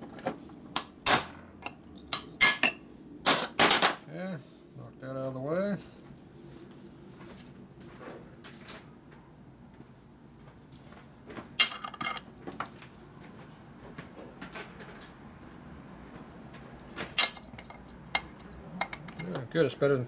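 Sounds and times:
metal tools clinking on workbench: 8.4 - 9.0, 11.6 - 12.3, 14.4 - 15.3, 17.1 - 19.5.

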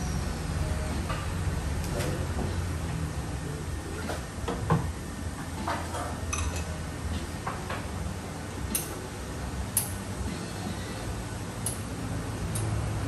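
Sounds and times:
steady low hum: 0.0 - 13.0
cups and glassware clinking: 5.7 - 6.8.

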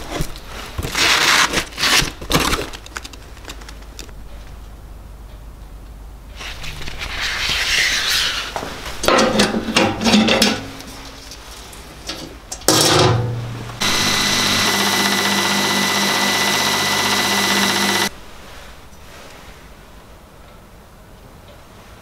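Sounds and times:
belt grinder whining: 13.8 - 18.1
sanding belt rustling: 13.8 - 18.1.

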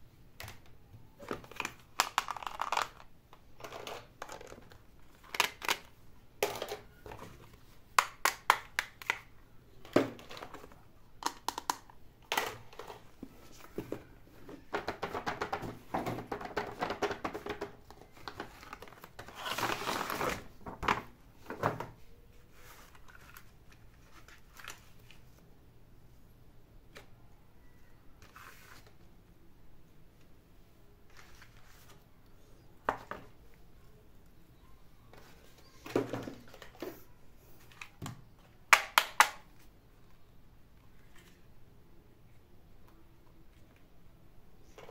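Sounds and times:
plastic pieces clicking and tapping: 0.4 - 6.8, 8.0 - 9.3, 11.2 - 13.0, 37.8 - 39.5.

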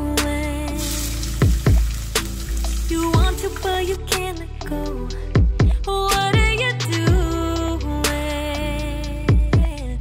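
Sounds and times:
background music: 0.0 - 10.0
onions sizzling in oil: 0.8 - 3.2.

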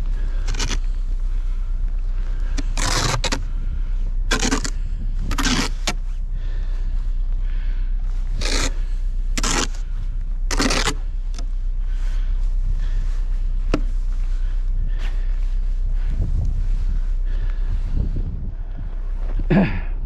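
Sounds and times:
low rumble: 0.0 - 20.0
snow shovel scraping snow: 0.2 - 1.0, 2.3 - 3.6, 4.3 - 6.7, 8.2 - 11.2.

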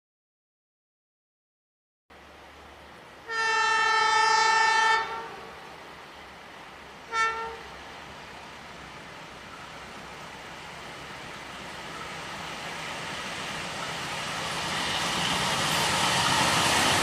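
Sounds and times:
train rumble: 2.1 - 17.0
locomotive horn blasts: 3.2 - 5.5, 7.1 - 7.7.

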